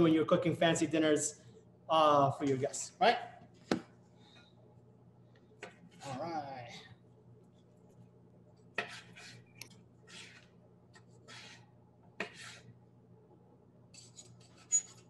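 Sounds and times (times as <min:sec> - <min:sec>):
faint steady hum: 0:00.0 - 0:15.0
knife cutting on a board: 0:08.8 - 0:09.4, 0:10.1 - 0:12.7.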